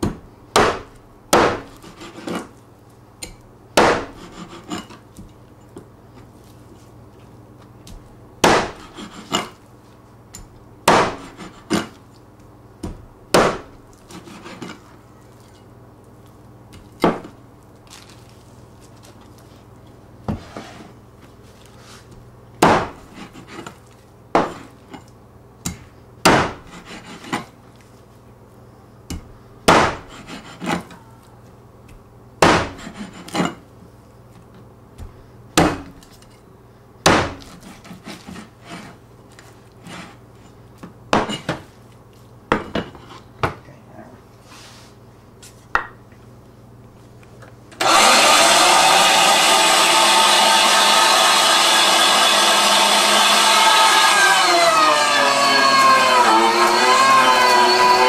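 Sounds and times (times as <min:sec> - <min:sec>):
cleaver chopping on cutting board: 0:00.0 - 0:02.3, 0:03.8 - 0:04.6, 0:08.4 - 0:09.2, 0:10.9 - 0:11.8, 0:12.8 - 0:14.6, 0:22.6 - 0:23.0, 0:24.4 - 0:24.7, 0:25.6 - 0:27.4, 0:29.1 - 0:30.8, 0:32.4 - 0:33.4, 0:35.0 - 0:35.9, 0:37.1 - 0:38.0.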